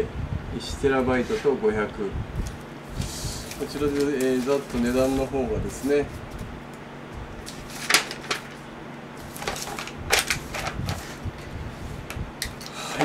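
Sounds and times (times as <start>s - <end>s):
paper rustling: 2.4s - 6.5s, 7.4s - 11.5s.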